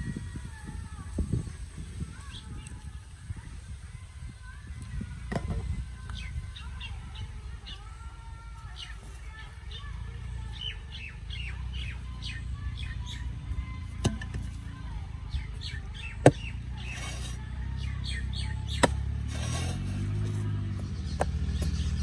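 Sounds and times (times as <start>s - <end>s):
birds chirping: 4.4s - 22.0s
hoe striking hard soil: 14.0s - 14.6s, 18.7s - 20.4s.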